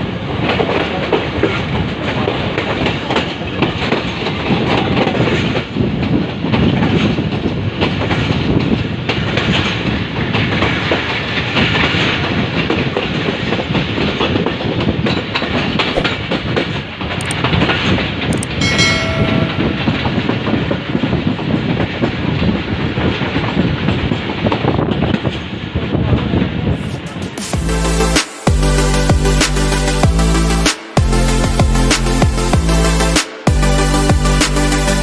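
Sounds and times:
train wheels clickety-clack: 0:00.0 - 0:27.6.

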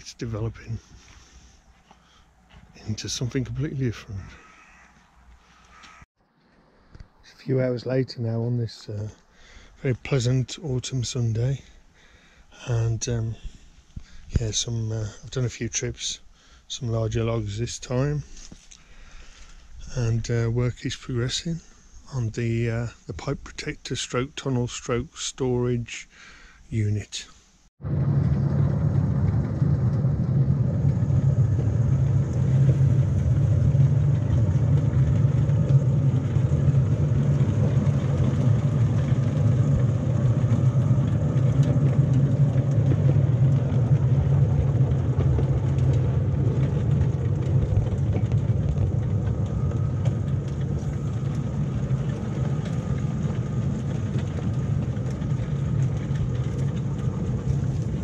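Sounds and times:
model locomotive rumbling on rails: 0:27.8 - 0:58.0.

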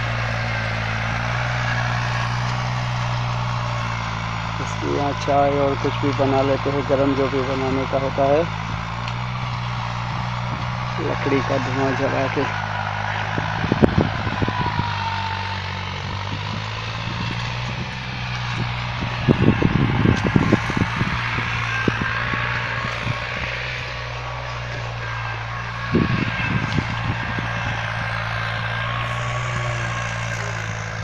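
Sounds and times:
tractor engine humming: 0:00.0 - 0:31.0.

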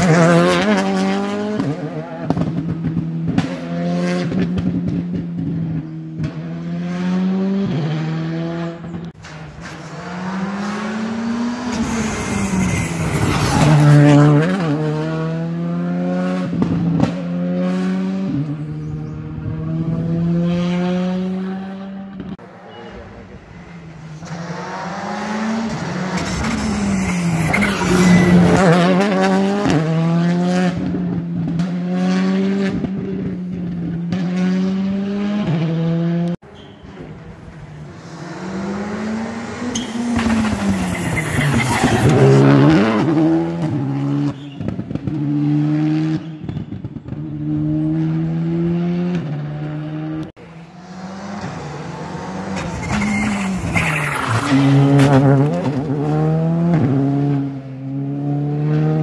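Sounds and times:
rally car engine revving: 0:00.0 - 0:36.4, 0:37.0 - 0:59.0
tyre squeal: 0:11.6 - 0:14.3, 0:25.7 - 0:29.0, 0:36.4 - 0:44.7, 0:50.8 - 0:55.8.

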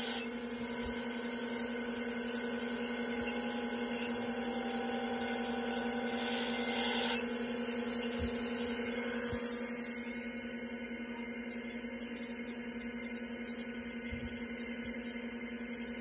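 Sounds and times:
hard drive whine and hum: 0:00.0 - 0:16.0.

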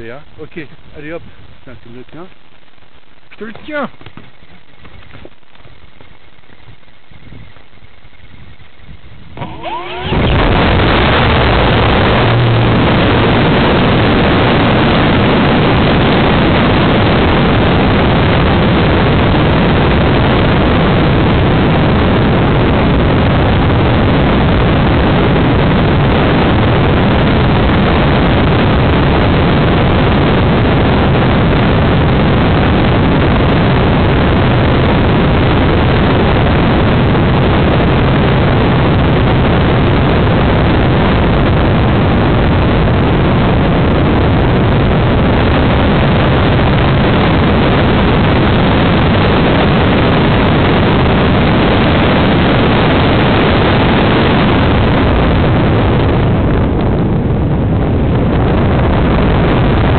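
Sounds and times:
model plane motor roaring: 0:09.2 - 0:12.8.

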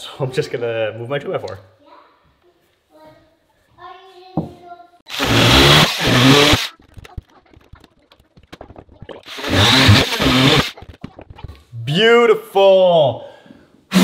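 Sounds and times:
cordless drill running: 0:05.1 - 0:06.7, 0:09.3 - 0:10.7.

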